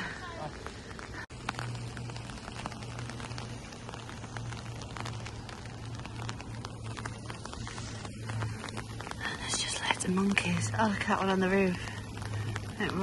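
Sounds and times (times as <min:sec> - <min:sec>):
light rain pattering: 0:00.0 - 0:13.0.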